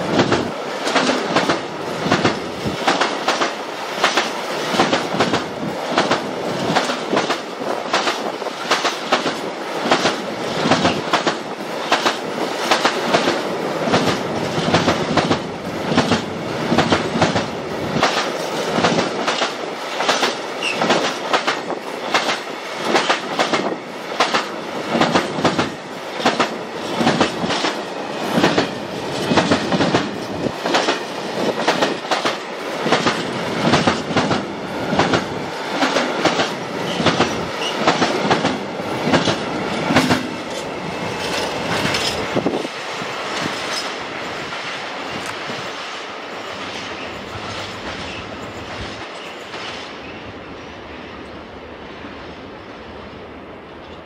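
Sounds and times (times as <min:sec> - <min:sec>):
train rolling: 0:00.0 - 0:54.0
wheels clacking over rail joints: 0:00.1 - 0:45.4.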